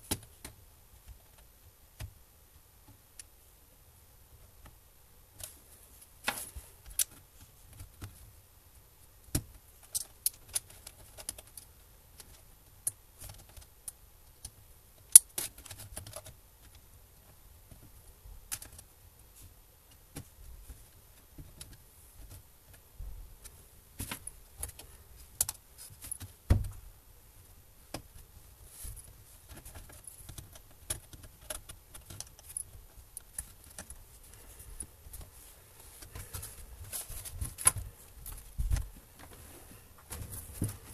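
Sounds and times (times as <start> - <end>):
dull thump: 26.5 - 26.8.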